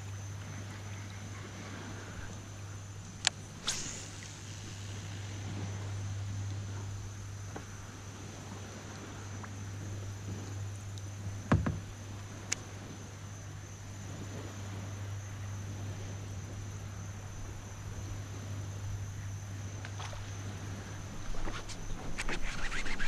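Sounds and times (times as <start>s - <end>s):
insects droning: 0.0s - 23.0s
low steady hum: 0.0s - 23.0s
light click: 3.2s - 4.3s.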